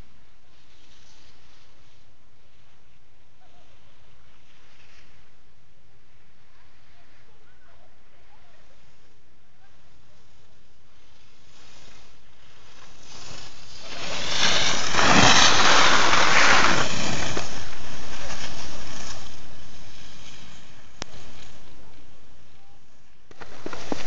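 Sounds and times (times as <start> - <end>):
skis scraping over hard snow: 11.0 - 22.3, 23.3 - 24.0.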